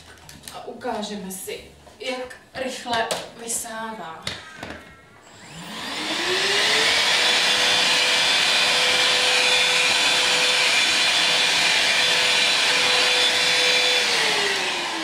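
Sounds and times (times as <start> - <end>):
handheld vacuum motor whine: 4.6 - 15.0.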